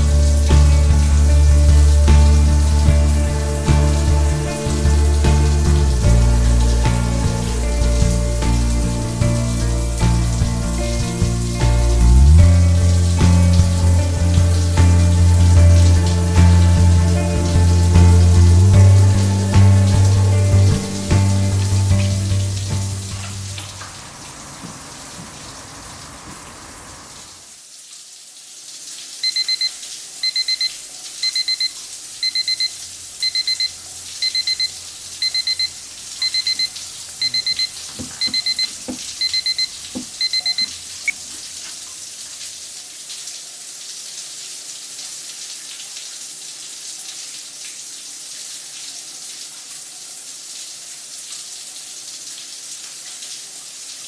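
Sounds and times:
electronic alarm beeping: 0:29.2 - 0:41.2.

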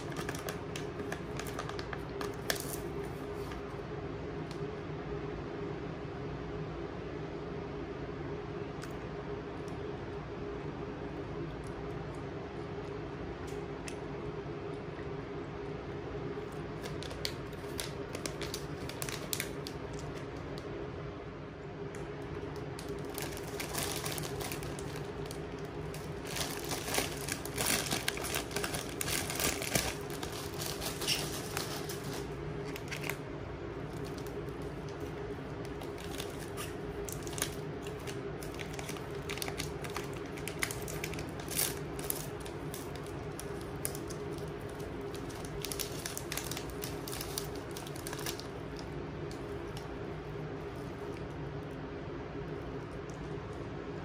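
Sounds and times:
plastic packaging crinkling: 0:00.0 - 0:03.7, 0:16.6 - 0:20.7, 0:22.2 - 0:50.0.

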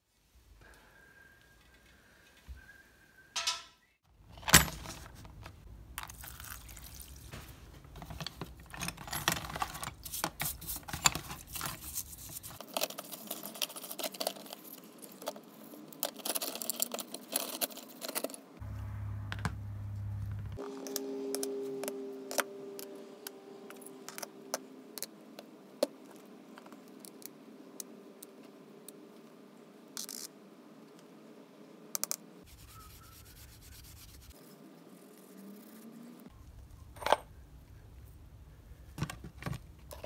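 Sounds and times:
brush scrubbing: 0:10.0 - 0:12.6, 0:32.5 - 0:34.5.

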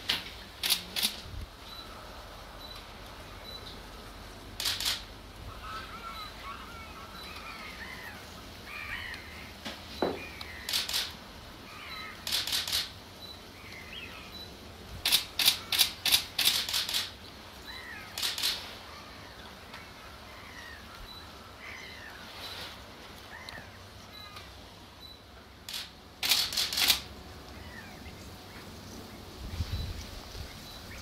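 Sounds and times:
birds short sharp calls: 0:04.6 - 0:24.6
faint wavering bird calls: 0:04.6 - 0:25.6, 0:27.4 - 0:31.0.

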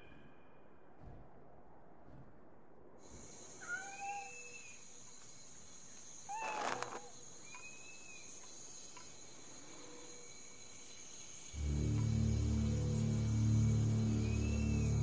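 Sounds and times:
insects chirring: 0:03.0 - 0:15.0
brief scuffle: 0:06.3 - 0:07.1.

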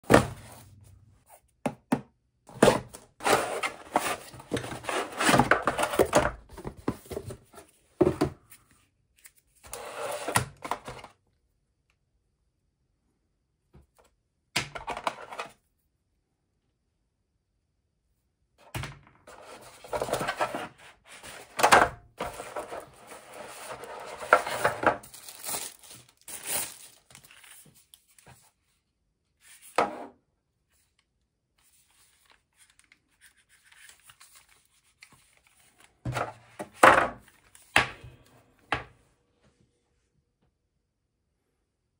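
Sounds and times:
plastic packaging rustling: 0:22.2 - 0:28.2.

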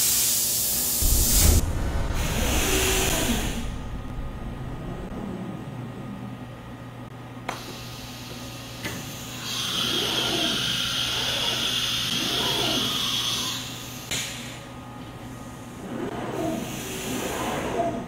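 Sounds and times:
loud whirring hiss: 0:00.0 - 0:05.4
steady electrical hum: 0:00.0 - 0:08.8.

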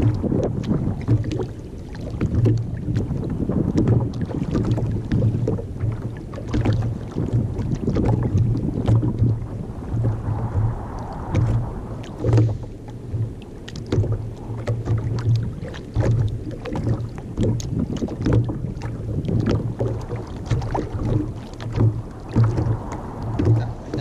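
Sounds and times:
low thumps: 0:00.0 - 0:01.6, 0:02.2 - 0:24.0
waves lapping against kayak hull: 0:00.0 - 0:24.0
splashy clicks: 0:10.0 - 0:24.0.

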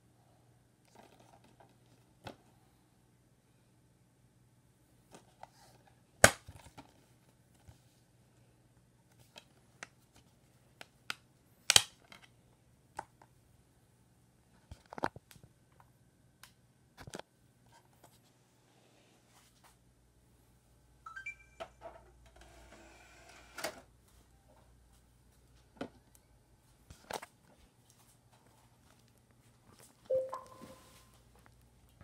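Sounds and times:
plastic case clicks and snaps: 0:11.7 - 0:12.3.

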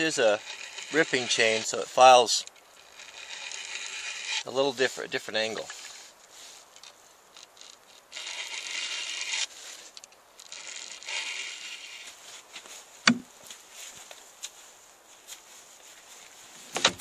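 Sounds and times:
file rasping on chainsaw chain: 0:00.0 - 0:06.0, 0:07.4 - 0:09.8, 0:10.4 - 0:12.6
sharp knock: 0:13.1 - 0:13.3.

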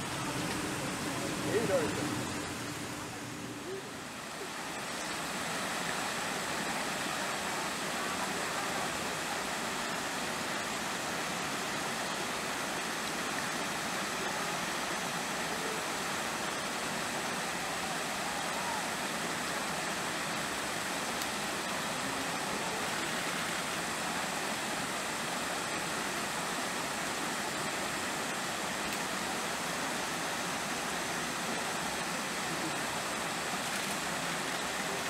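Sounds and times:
faint distant voices: 0:00.0 - 0:10.3, 0:13.8 - 0:29.9
rushing outdoor noise: 0:00.0 - 0:35.0.

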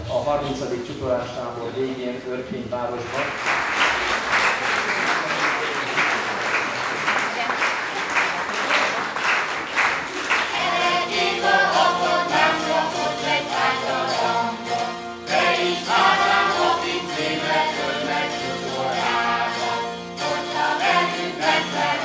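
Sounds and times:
applause: 0:03.0 - 0:10.7
zithers strummed playing folk tune: 0:10.6 - 0:22.0.

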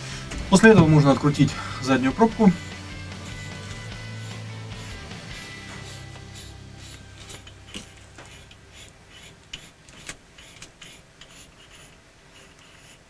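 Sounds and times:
threaded plug clicking and rasping: 0:05.8 - 0:12.7.

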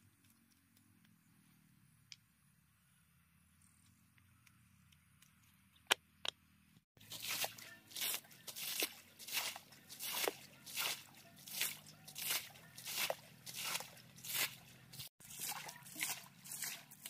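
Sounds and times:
water splashing from basin: 0:07.0 - 0:17.0.

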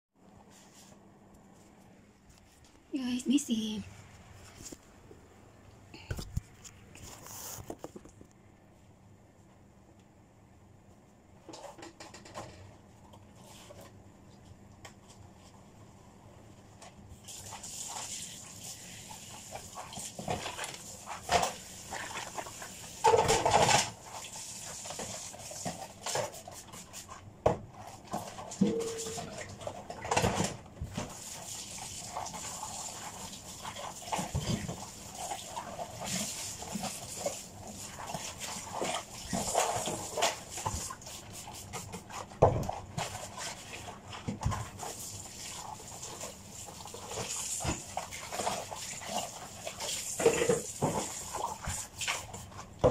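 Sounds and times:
dishes and cutlery clinking: 0:28.6 - 0:29.3.

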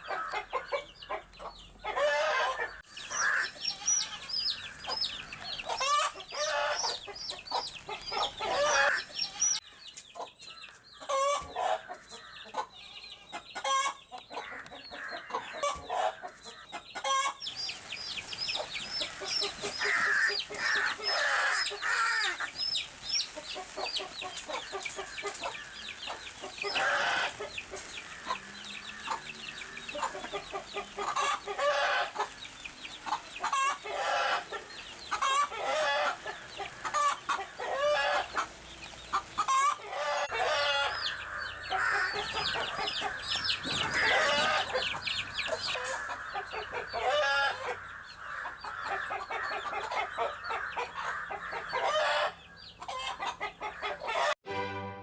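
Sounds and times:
chicks peeping: 0:00.0 - 0:54.4
hen clucking: 0:00.0 - 0:54.4
chicken squawks: 0:23.4 - 0:32.3, 0:33.1 - 0:38.5, 0:39.1 - 0:54.4.

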